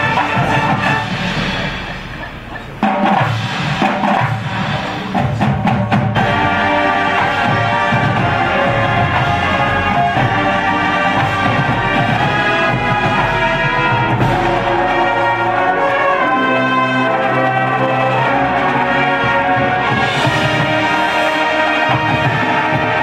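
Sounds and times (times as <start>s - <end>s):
brass chords: 0.0s - 23.0s
drums: 0.0s - 23.0s
mallet percussion: 0.0s - 23.0s.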